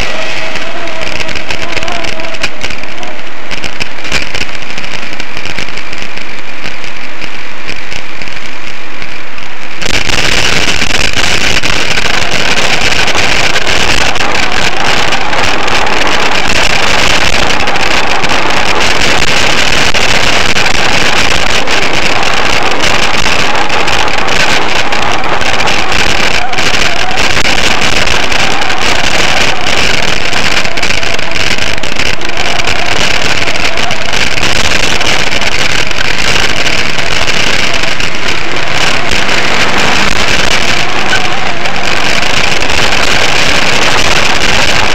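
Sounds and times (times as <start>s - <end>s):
wind rushing on microphone: 0.0s - 44.9s
bicycle rolling: 11.4s - 44.9s.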